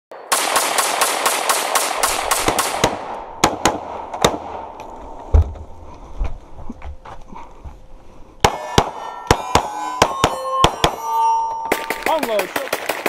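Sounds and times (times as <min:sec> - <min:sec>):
rapid gunshots echoing: 0:00.3 - 0:04.7, 0:11.7 - 0:13.0
single gunshots: 0:00.3 - 0:04.7, 0:08.4 - 0:11.0.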